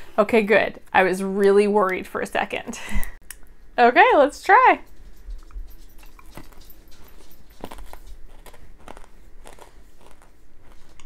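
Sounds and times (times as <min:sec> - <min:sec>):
person chewing crunchy candy: 0:05.4 - 0:11.0.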